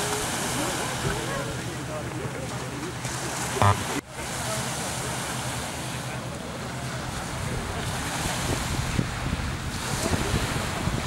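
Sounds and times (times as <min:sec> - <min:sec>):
waves washing over pebbles: 0:00.0 - 0:02.0, 0:03.0 - 0:11.0
wind buffeting microphone: 0:07.2 - 0:11.0.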